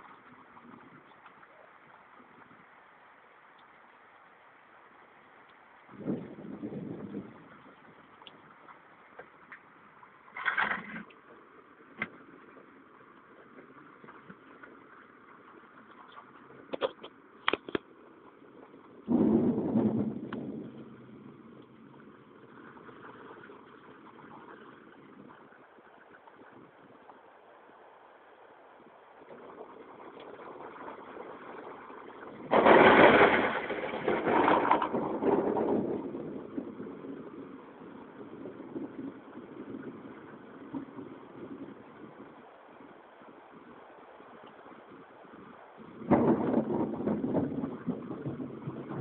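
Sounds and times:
faint outdoor background noise: 0:00.0 - 0:49.0
faint steady hiss: 0:00.0 - 0:49.0
thunder clap rolling: 0:19.0 - 0:24.4, 0:29.3 - 0:41.8, 0:45.9 - 0:49.0.

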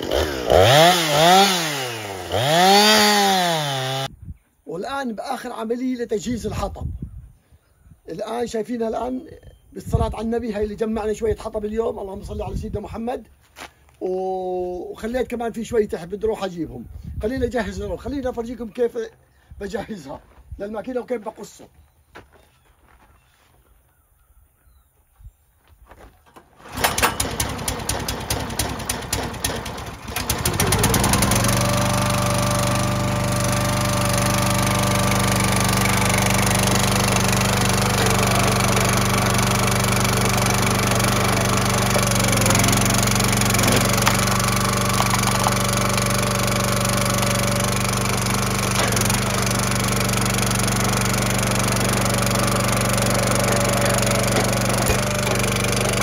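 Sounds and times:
small gasoline engine running: 0:00.0 - 0:04.1, 0:26.6 - 0:56.0.

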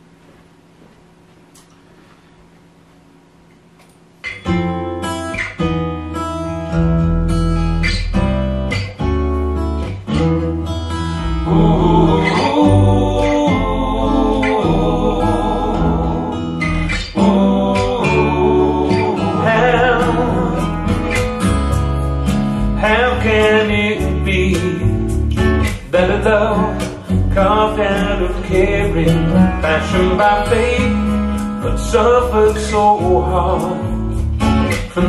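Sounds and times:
guitar through loudspeakers: 0:03.8 - 0:35.0
person singing: 0:11.2 - 0:21.2, 0:22.6 - 0:25.1, 0:25.8 - 0:35.0.

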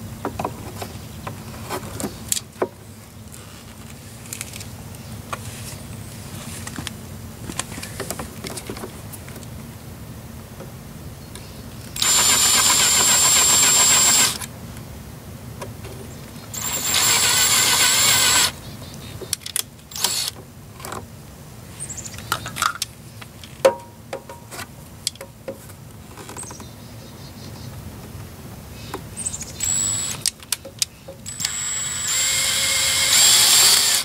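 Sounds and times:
cordless drill drilling plastic: 0:12.0 - 0:14.5, 0:16.6 - 0:18.6, 0:19.9 - 0:20.4, 0:29.6 - 0:30.2, 0:31.3 - 0:34.0.

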